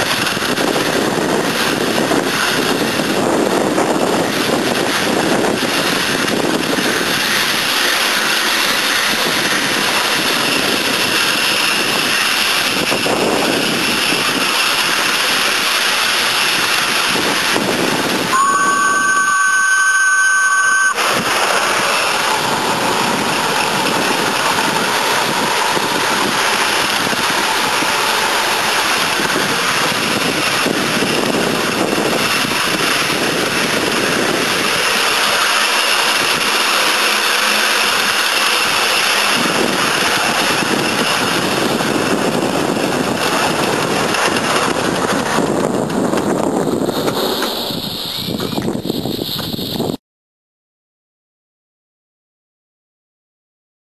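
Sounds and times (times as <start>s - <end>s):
rushing hiss of steam: 0.0s - 18.3s, 21.0s - 44.6s, 46.8s - 49.8s
two-note whistle: 18.3s - 21.2s.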